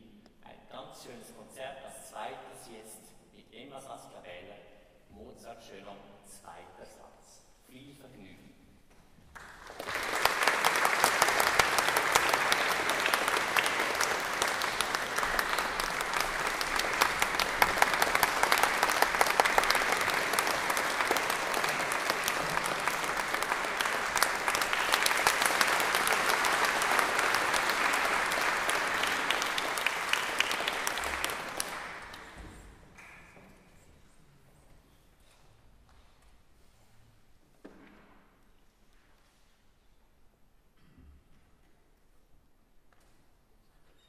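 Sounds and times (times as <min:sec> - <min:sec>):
audience applauding: 0:09.3 - 0:33.2.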